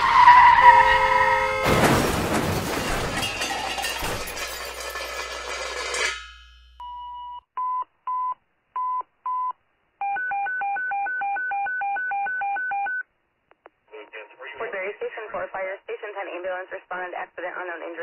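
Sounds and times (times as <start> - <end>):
telephone dialing tones: 10.0 - 13.0.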